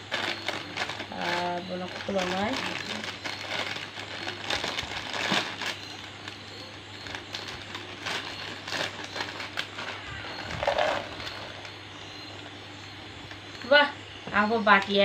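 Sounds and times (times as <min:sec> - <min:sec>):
snacks rattling into plastic bowl: 0:00.0 - 0:06.4, 0:07.0 - 0:11.7
plastic snack packet crinkling: 0:00.0 - 0:11.8.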